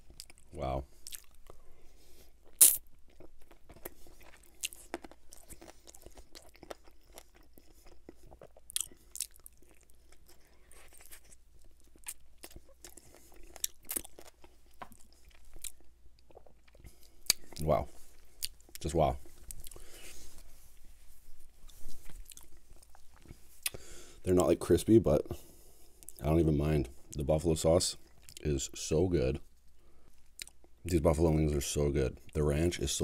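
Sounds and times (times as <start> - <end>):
mouth clicks and smacks: 2.5 - 10.3
chewing and biting chicken wing: 2.5 - 17.6.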